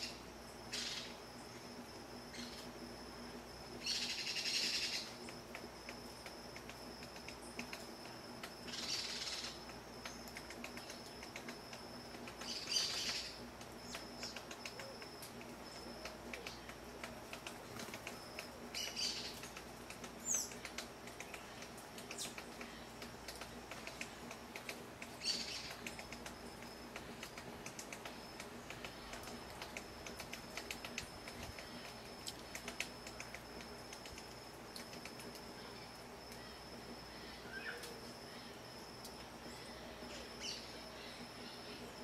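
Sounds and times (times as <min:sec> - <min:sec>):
faint high steady tone: 0:00.0 - 0:42.0
light ticks: 0:05.2 - 0:08.6, 0:09.6 - 0:35.4
birds calling: 0:12.2 - 0:33.4.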